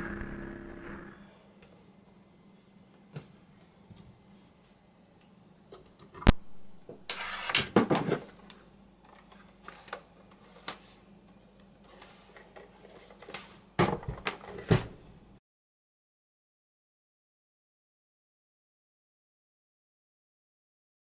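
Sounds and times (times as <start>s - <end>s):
sharp click: 6.3s - 6.8s
bumps and scraping on a desk: 7.0s - 8.3s.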